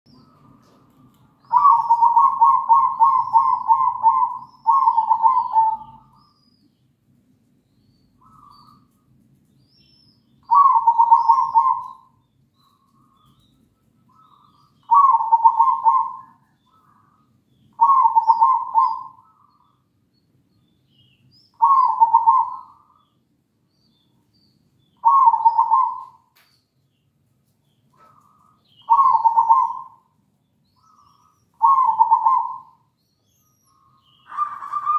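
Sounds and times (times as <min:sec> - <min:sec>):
dove cooing: 0:00.2 - 0:06.2, 0:10.4 - 0:12.2, 0:14.1 - 0:19.6, 0:21.6 - 0:23.0, 0:25.0 - 0:26.3, 0:28.0 - 0:30.1, 0:30.8 - 0:32.9, 0:33.7 - 0:34.9.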